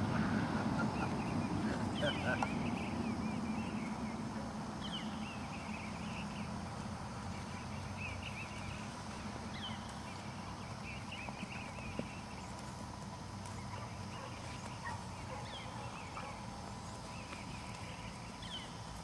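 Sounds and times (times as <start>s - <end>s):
birds chirping: 0.0s - 19.0s
steady outdoor hiss: 0.0s - 19.0s
horse hoofbeats on grass: 6.2s - 19.0s.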